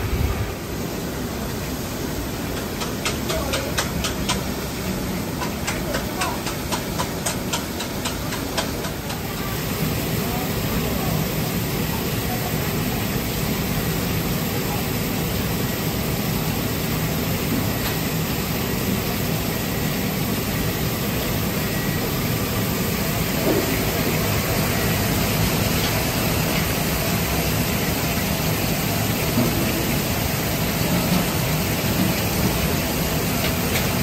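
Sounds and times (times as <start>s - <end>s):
rushing kitchen noise: 0.0s - 34.0s.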